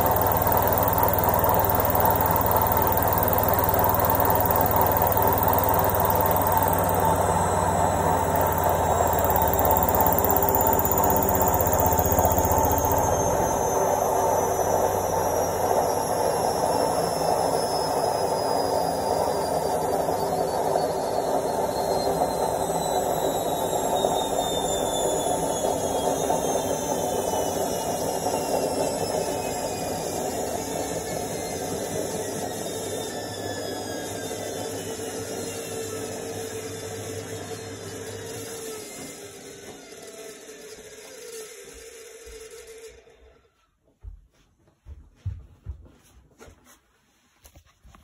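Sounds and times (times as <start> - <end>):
washing machine drum spinning down: 0.0 - 35.4.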